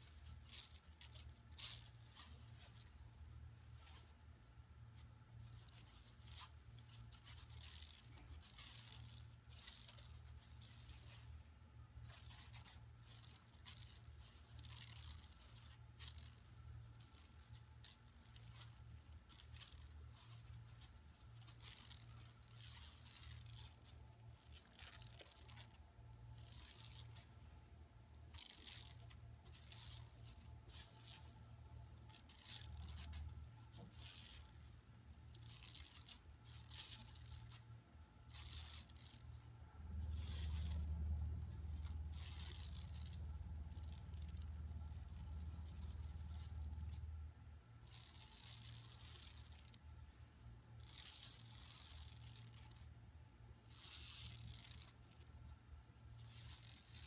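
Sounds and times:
steady low hum: 0:12.9 - 0:57.0.

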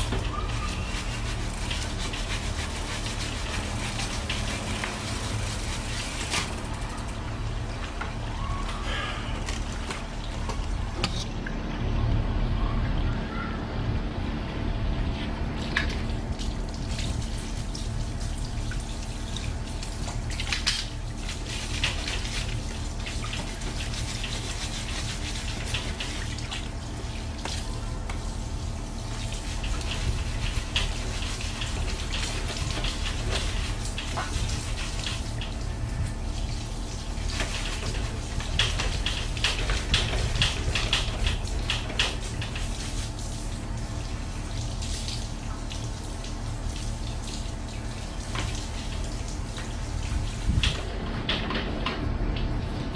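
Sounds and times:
shower water spraying and splashing: 0:00.0 - 0:10.5, 0:15.6 - 0:51.6.

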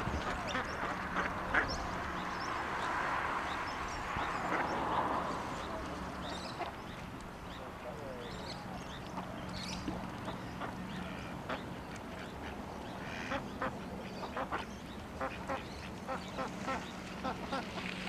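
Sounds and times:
ducks quacking: 0:00.0 - 0:02.3, 0:04.2 - 0:05.7, 0:10.2 - 0:17.8.

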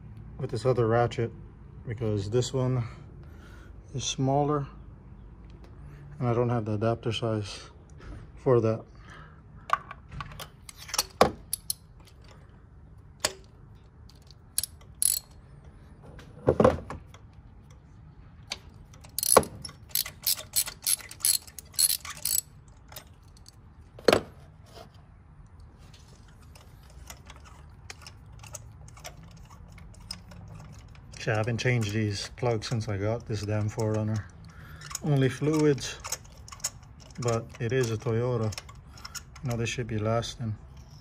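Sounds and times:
metal tools clinking and knocking: 0:09.8 - 0:12.5, 0:13.2 - 0:15.8, 0:18.6 - 0:23.6, 0:26.2 - 0:40.0
hand ratchet clicking: 0:10.7 - 0:11.9, 0:14.1 - 0:15.4, 0:18.9 - 0:23.6.

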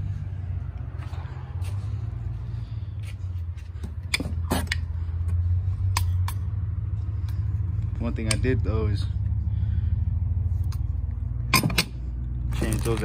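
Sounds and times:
steady low hum: 0:00.0 - 0:12.6.

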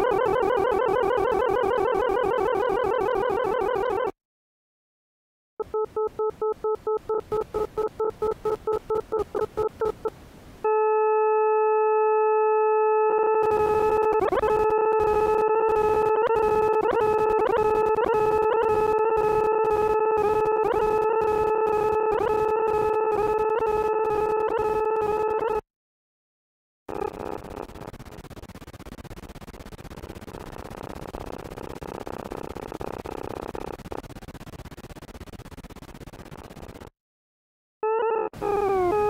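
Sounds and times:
buzzy electronic tone pulsing: 0:13.1 - 0:25.6, 0:26.9 - 0:36.9, 0:38.0 - 0:39.0
rapid crackling clicks: 0:13.4 - 0:24.7, 0:26.9 - 0:36.9.

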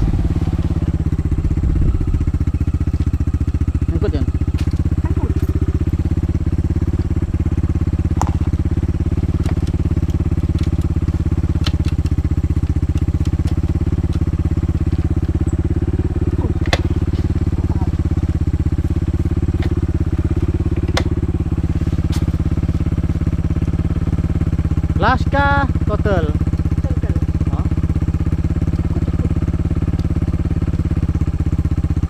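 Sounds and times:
dirt bike engine idling: 0:00.0 - 0:32.0
sharp clicks: 0:09.3 - 0:15.3.

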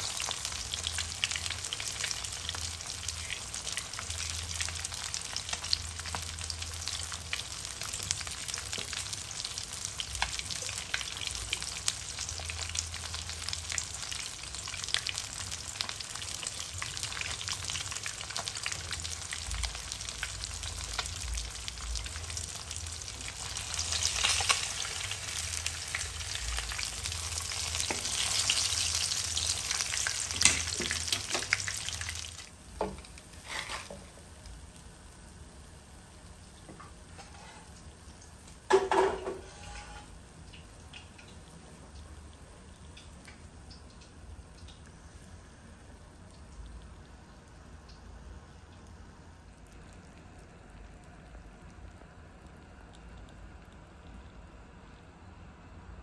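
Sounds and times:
fish sizzling in hot oil: 0:00.0 - 0:35.5.

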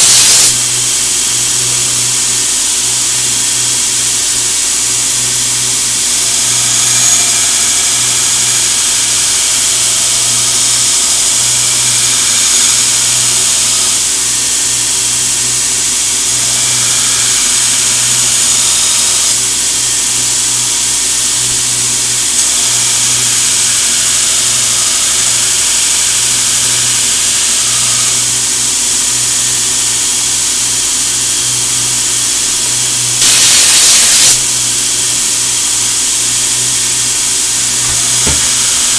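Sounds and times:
compressed air blast hissing: 0:00.0 - 0:01.2, 0:32.2 - 0:38.9
belt grinder grinding steel: 0:00.0 - 0:38.9.

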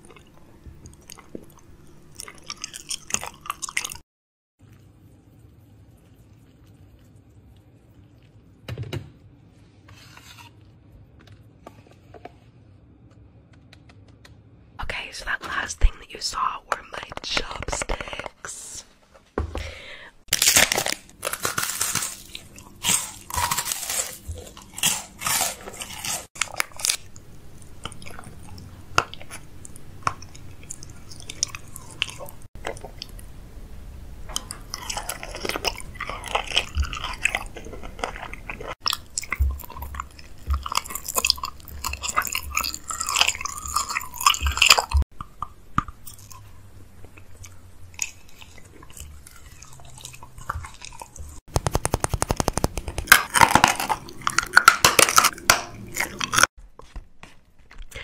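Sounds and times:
person crunching and chewing candy: 0:00.0 - 0:04.0, 0:19.8 - 0:33.4, 0:34.2 - 0:56.9
candy packet crackling: 0:20.3 - 0:28.3, 0:50.8 - 0:56.5.

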